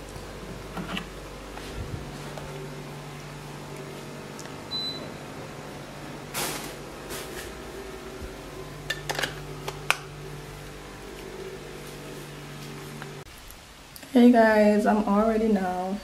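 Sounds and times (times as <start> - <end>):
air conditioner low hum: 0.0 - 16.0
air conditioner beep: 2.1 - 8.8.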